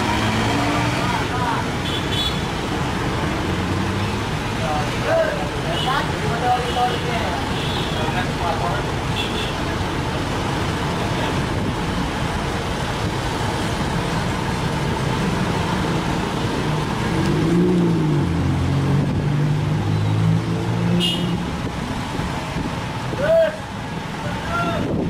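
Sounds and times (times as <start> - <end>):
truck engine pulling away: 0.0 - 1.4
road traffic noise: 0.0 - 25.0.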